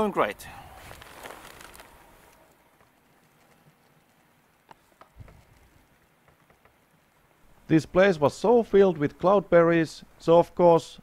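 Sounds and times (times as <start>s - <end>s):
plastic bag and plants rustling: 0.0s - 6.2s.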